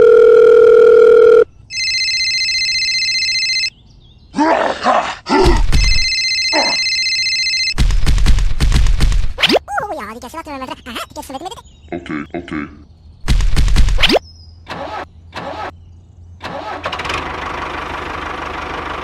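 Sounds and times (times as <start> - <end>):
electronic telephone ring: 0.0 - 3.7, 5.8 - 7.8
steady phone tone: 0.0 - 3.7, 5.8 - 7.8
grunting voice effects: 4.4 - 5.8, 6.5 - 6.8, 9.6 - 12.9.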